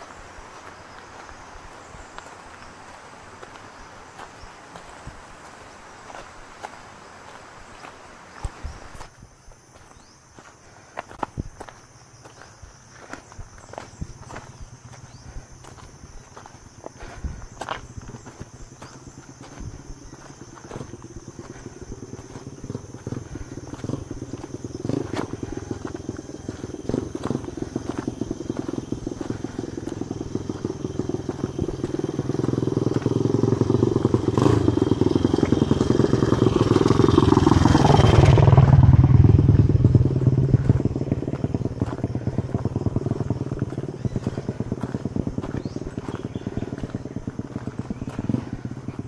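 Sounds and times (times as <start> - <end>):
footsteps: 0.0 - 36.2, 40.2 - 49.0
motorcycle engine passing by: 13.6 - 49.0.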